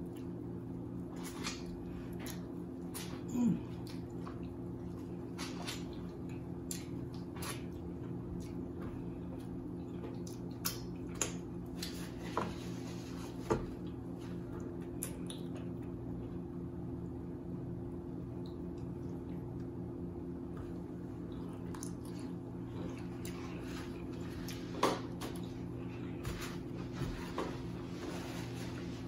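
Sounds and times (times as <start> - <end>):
steady low hum: 0.0 - 29.0
wet chewing of corn: 21.1 - 26.2.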